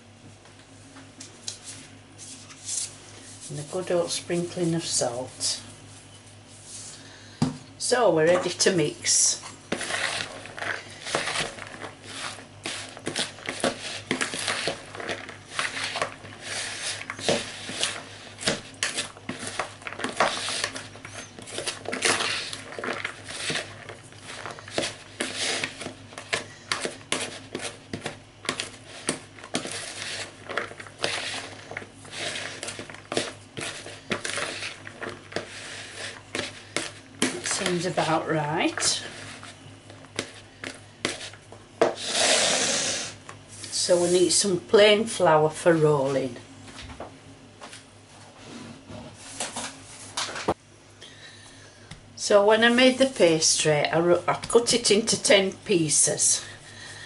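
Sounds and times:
spoon scraping a bowl: 0:09.4 - 0:39.6.

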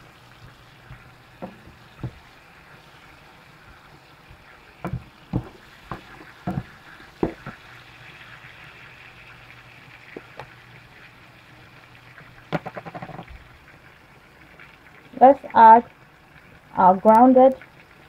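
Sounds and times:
onions sizzling in a frying pan: 0:00.0 - 0:18.0
wooden spoon knocking against pan: 0:01.4 - 0:02.2, 0:04.8 - 0:07.6.

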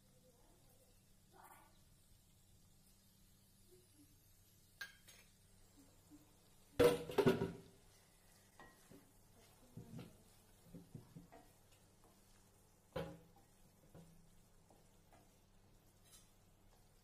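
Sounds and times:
wooden spatula scraping metal pan: 0:15.9 - 0:16.4.

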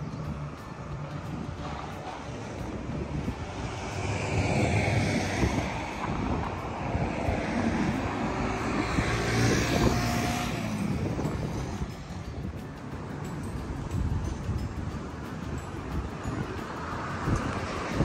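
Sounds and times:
vehicle passing by: 0:00.0 - 0:13.3.

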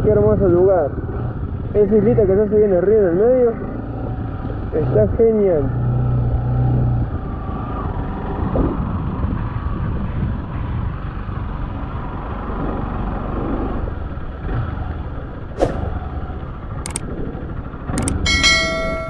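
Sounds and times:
motorcycle engine running: 0:00.0 - 0:19.0
ride noise on microphone: 0:00.0 - 0:19.0
sharp click: 0:16.8 - 0:17.1, 0:18.0 - 0:18.2.

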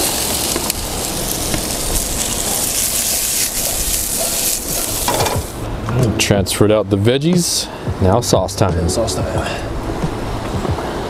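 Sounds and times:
vegetables sizzling in oil: 0:00.0 - 0:05.6.

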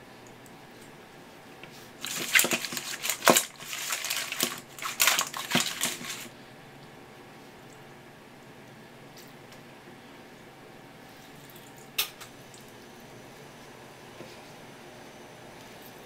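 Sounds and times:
crab shells rattling in steel bowl: 0:02.0 - 0:06.3.

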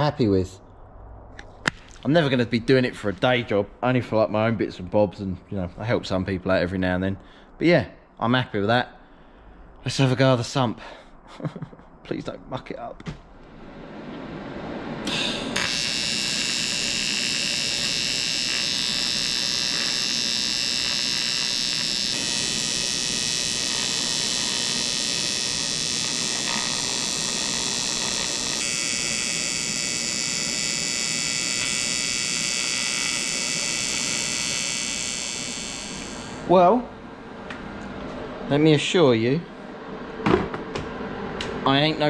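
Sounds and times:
welding arc buzzing: 0:15.0 - 0:36.6.

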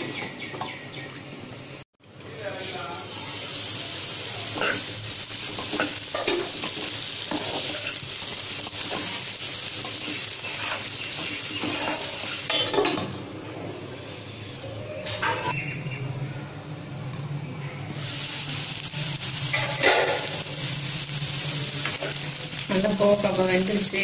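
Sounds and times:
vegetables sizzling in oil: 0:00.0 - 0:13.3, 0:17.9 - 0:24.0
spatula scraping pan: 0:05.5 - 0:08.1, 0:08.7 - 0:12.8.

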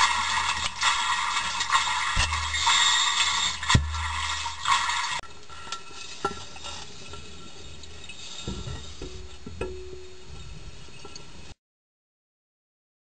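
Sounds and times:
underwater air bubbles fizzing: 0:00.0 - 0:05.2
low underwater thump: 0:02.2 - 0:02.7, 0:03.7 - 0:04.5.

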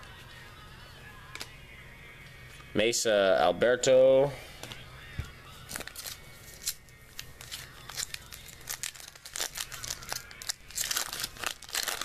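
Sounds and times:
foil wrapper crinkling and tearing: 0:05.7 - 0:12.0.

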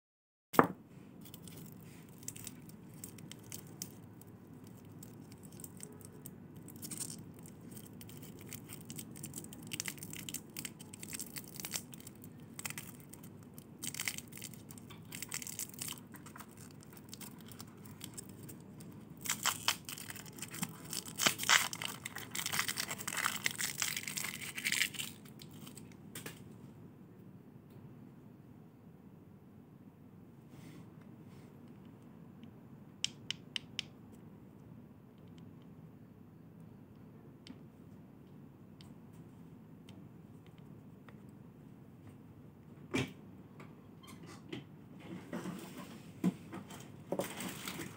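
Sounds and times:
wrappers crinkling and tearing: 0:01.2 - 0:25.8, 0:47.2 - 0:47.9.

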